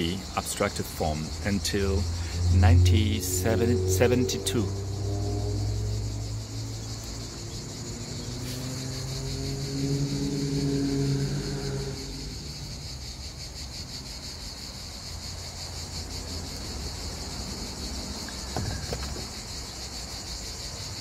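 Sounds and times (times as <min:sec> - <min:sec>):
insects chirping: 0:00.0 - 0:21.0
low outdoor rumble: 0:00.2 - 0:08.9
low steady drone: 0:01.0 - 0:13.7.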